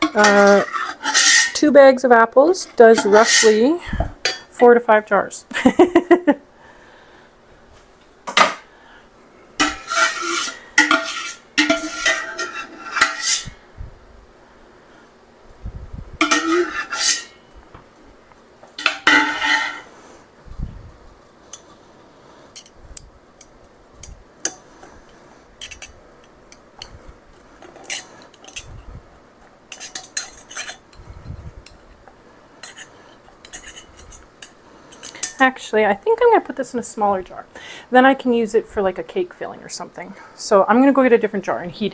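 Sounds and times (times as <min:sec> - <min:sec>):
metal ladle clanking against pot: 0:16.2 - 0:17.3, 0:18.8 - 0:19.8.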